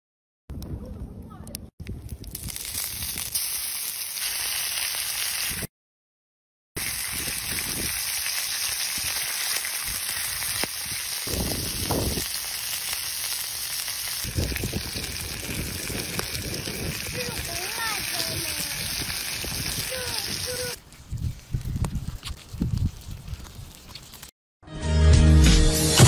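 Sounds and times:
meat sizzling on hot stone: 0:02.3 - 0:05.7, 0:06.8 - 0:20.8.

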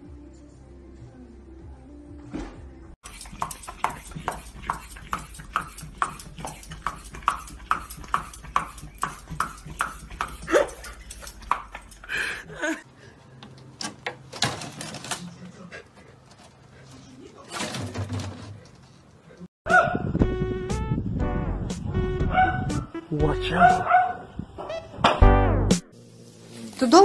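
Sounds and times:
dog chewing carrot crunches: 0:03.1 - 0:12.1.

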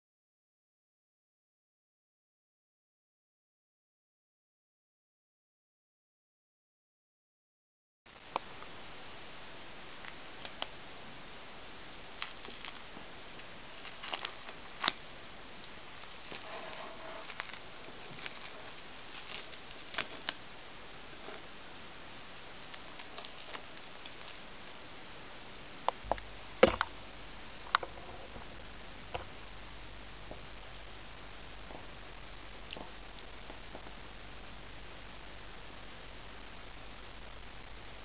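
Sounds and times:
cling film crinkling: 0:09.8 - 0:10.8, 0:12.0 - 0:26.9, 0:27.6 - 0:38.0.

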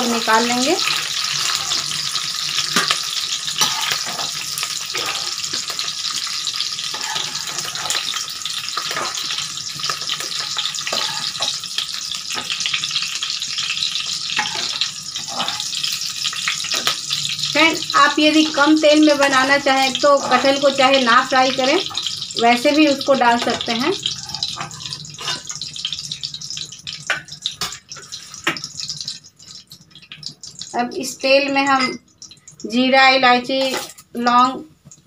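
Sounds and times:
metal skimmer scraping a pan: 0:00.0 - 0:12.8, 0:14.0 - 0:17.3, 0:23.2 - 0:25.7
onions sizzling in oil: 0:00.0 - 0:35.0.

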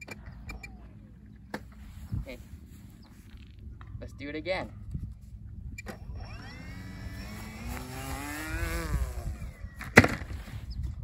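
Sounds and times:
electric motor whine rising: 0:05.8 - 0:10.0
loud thump on the ground: 0:09.8 - 0:10.5.

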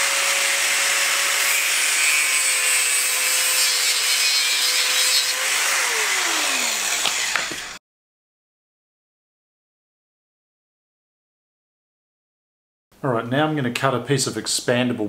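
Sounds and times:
power tool cutting: 0:00.0 - 0:07.8.

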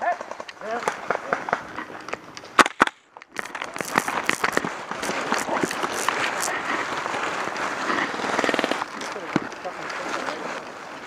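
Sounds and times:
irregular crackles: 0:00.5 - 0:10.3
dry leaves crunching and rustling: 0:03.4 - 0:07.8.

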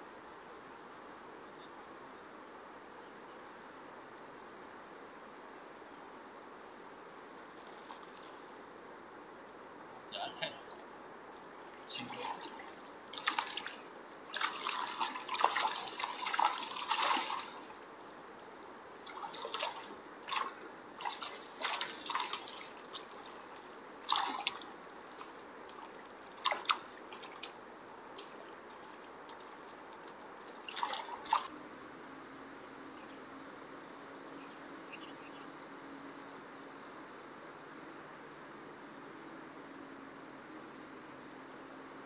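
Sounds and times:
water splashing from wading: 0:11.7 - 0:17.8, 0:19.0 - 0:31.5.

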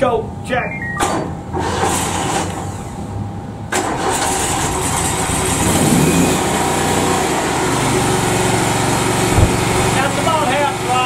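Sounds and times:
mower engine running: 0:04.4 - 0:11.0.

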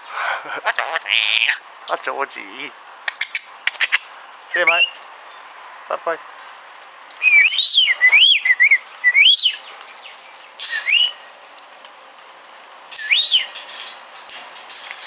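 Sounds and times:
parrot whistling and chirping: 0:03.1 - 0:05.0, 0:07.2 - 0:09.7, 0:10.7 - 0:11.2, 0:13.0 - 0:13.5.

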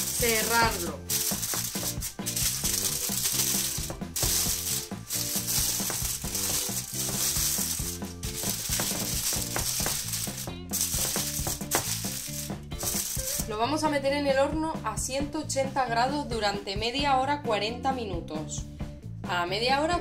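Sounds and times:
aluminium foil crinkling: 0:00.0 - 0:13.5
background music: 0:00.0 - 0:20.0.

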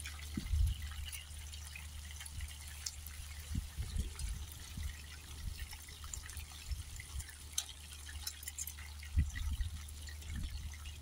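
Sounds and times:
fish frying in crackling oil: 0:00.0 - 0:11.0
wind rumbling on microphone: 0:00.2 - 0:01.2, 0:02.3 - 0:07.3, 0:09.0 - 0:11.0.

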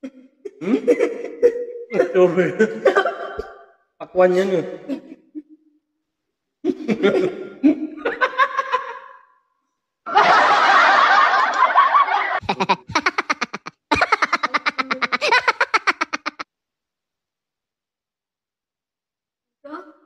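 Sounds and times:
people laughing and giggling: 0:00.4 - 0:03.6, 0:06.6 - 0:09.2, 0:10.1 - 0:16.4.

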